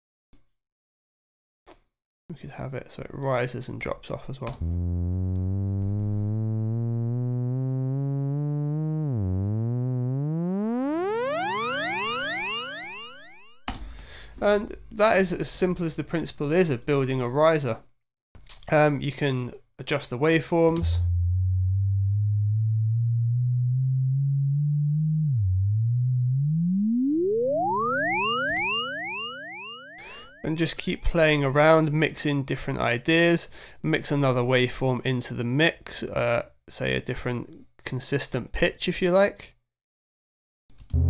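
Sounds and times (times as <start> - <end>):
buzzy synthesizer riser: 4.6 - 13.4, 20.8 - 29.8.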